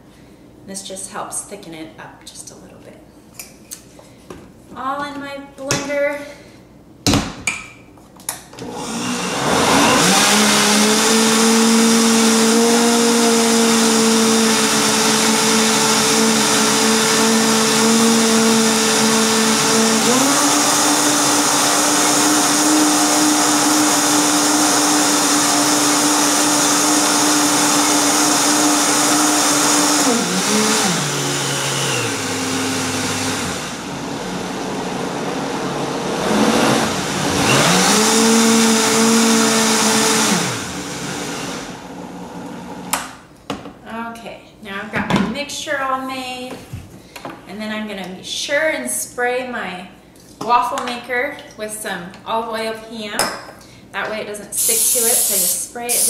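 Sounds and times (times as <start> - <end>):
blender motor running: 8.6 - 42.9, 54.6 - 56.0.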